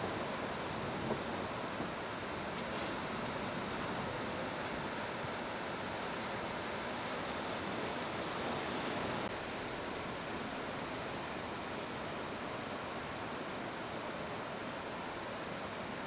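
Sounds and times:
ocean waves breaking: 0.0 - 11.7.

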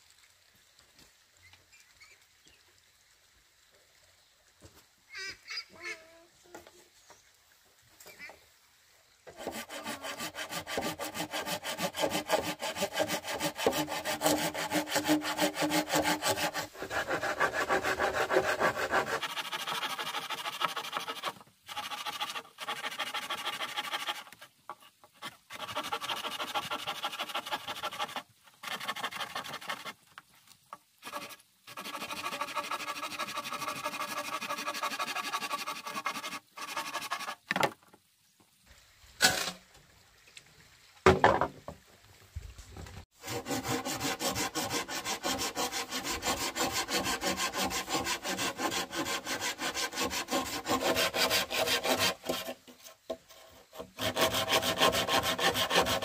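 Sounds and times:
hand saw cutting bamboo: 9.3 - 30.0, 31.0 - 37.5, 43.2 - 56.0.

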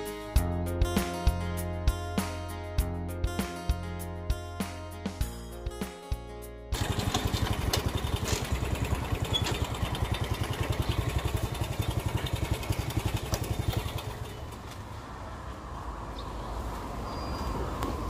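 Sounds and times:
background music: 0.0 - 8.3
motor scooter engine running: 6.8 - 14.9.

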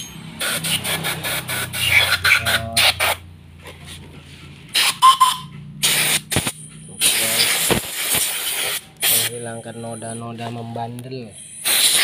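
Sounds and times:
air blow gun hissing: 0.4 - 3.2, 4.7 - 5.0, 5.8 - 9.4, 11.6 - 12.0
brief high whistle: 4.8 - 5.5.

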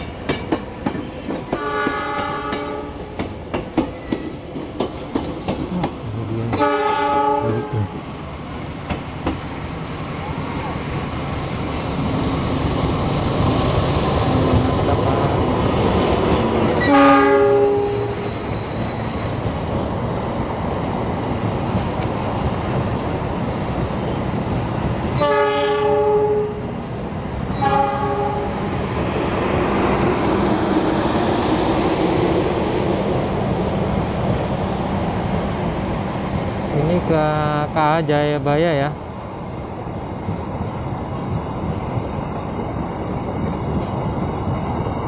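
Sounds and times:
train wheels clattering over track: 0.0 - 6.6, 8.8 - 9.6
train horn: 1.6 - 3.0, 6.5 - 8.0, 16.8 - 18.3, 25.2 - 26.6, 27.6 - 28.6.

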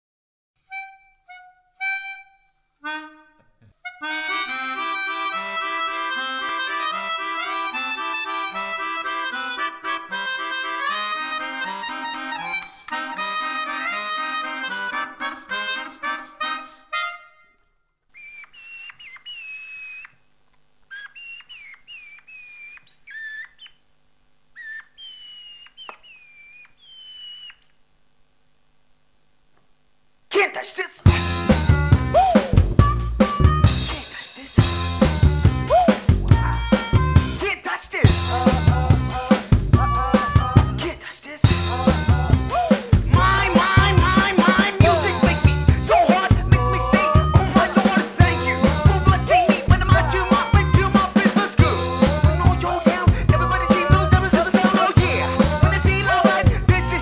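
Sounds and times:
melodica tune with chords: 0.6 - 17.8, 31.0 - 57.0
bouncing bass line: 31.1 - 34.0, 34.6 - 37.4, 38.0 - 40.8, 41.5 - 57.0.

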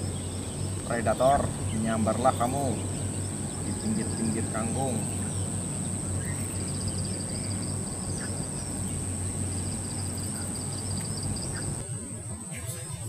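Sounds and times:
insects chirping rapidly: 0.0 - 13.0
steady high whine: 0.0 - 13.0
steady low hum: 0.0 - 13.0.

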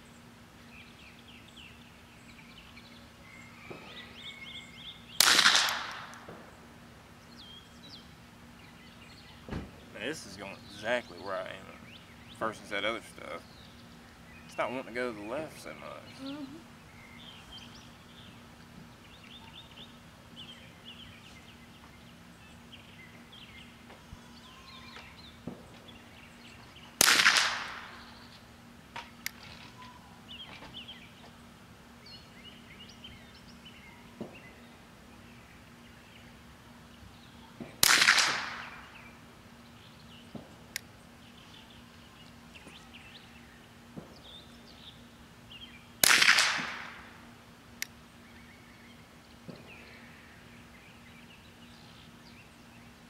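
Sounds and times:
rifle shots: 5.2 - 6.2, 27.0 - 27.9, 37.8 - 38.8, 46.0 - 47.0
birds chirping faintly: 6.4 - 27.0, 47.0 - 53.0.

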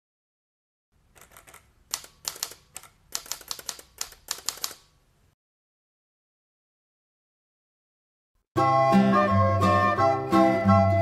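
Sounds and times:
typewriter keys clacking: 1.2 - 4.8.

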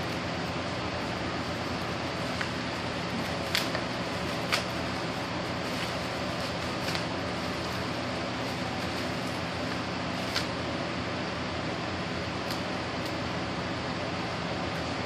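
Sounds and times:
room hum and hiss: 0.0 - 15.0
bubble wrap crackling: 1.0 - 10.7.

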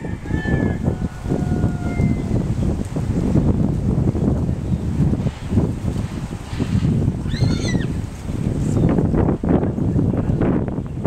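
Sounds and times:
hooves on sandy ground: 0.0 - 11.0
wind on microphone: 0.0 - 11.0
horse squealing: 7.2 - 8.0.

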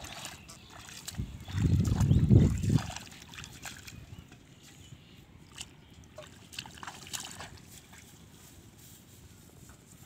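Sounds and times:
short water splashes: 0.0 - 8.3
shallow water sloshing: 5.5 - 8.2.

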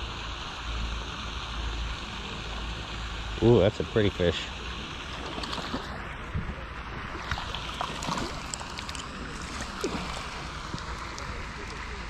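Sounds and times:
fish splashing in water: 4.5 - 12.0.

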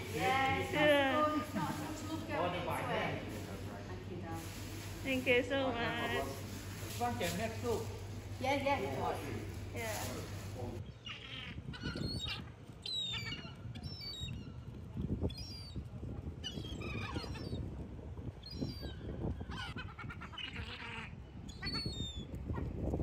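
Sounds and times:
gulls calling: 10.8 - 14.7, 16.4 - 17.7, 18.4 - 22.8.

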